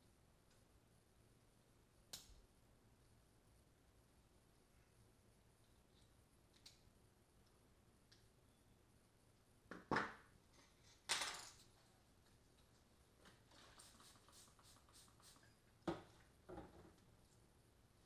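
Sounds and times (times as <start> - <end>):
tools clattering on table: 11.0 - 11.7.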